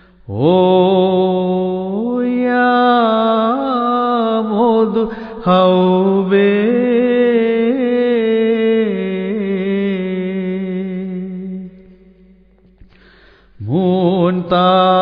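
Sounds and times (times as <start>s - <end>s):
person chanting: 0.1s - 12.5s, 13.6s - 15.0s.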